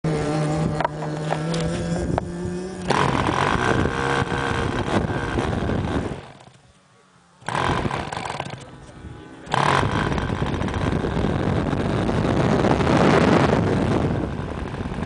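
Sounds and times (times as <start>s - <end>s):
model airplane engine running: 0.1s - 15.0s
engine clicks: 7.4s - 11.0s.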